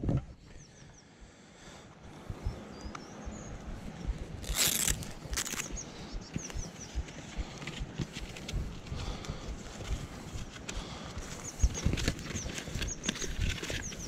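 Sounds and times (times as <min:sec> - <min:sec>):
faint bird chirps: 0:00.3 - 0:01.4, 0:02.2 - 0:04.2, 0:05.2 - 0:07.6
plastic crackling rustles: 0:04.4 - 0:05.7, 0:09.7 - 0:14.0.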